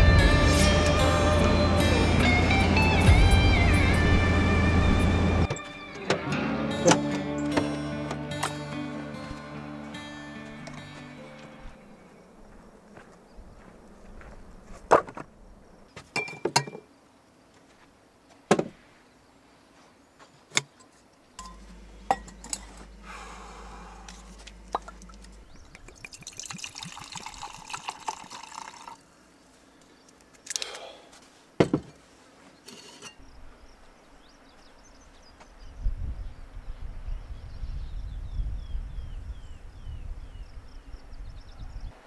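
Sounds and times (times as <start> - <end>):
sharp knocks and clinks: 21.4 - 22.8
liquid pouring into a mug: 25.7 - 29.0.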